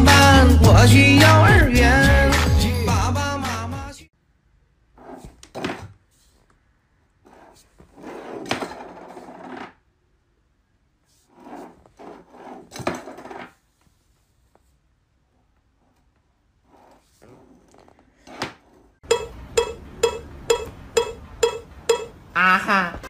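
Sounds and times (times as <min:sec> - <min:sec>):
cat scraping a tin can: 0:07.3 - 0:09.7, 0:11.3 - 0:13.6.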